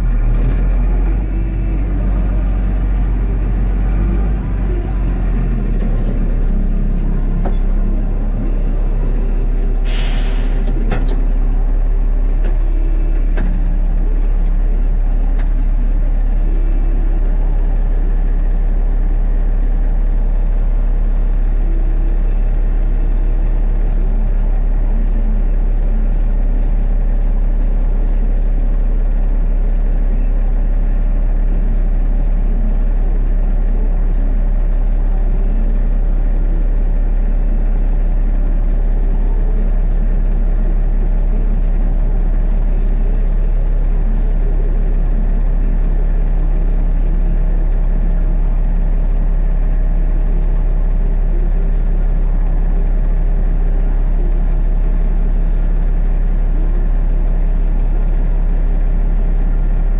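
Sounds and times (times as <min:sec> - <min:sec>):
plow blade pushing snow: 0:00.0 - 0:19.0
diesel truck engine running: 0:00.0 - 0:59.9
short burst of hissing: 0:09.8 - 0:10.7.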